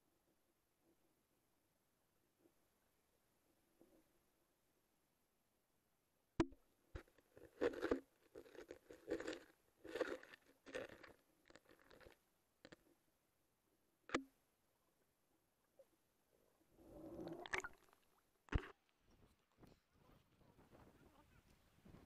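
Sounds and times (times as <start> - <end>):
muffled crunchy rustling and knocking: 18.5 - 22.0.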